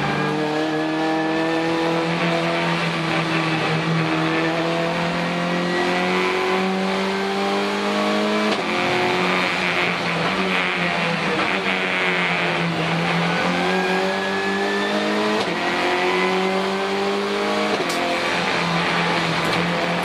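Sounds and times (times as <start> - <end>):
race car engine accelerating: 0.0 - 20.0.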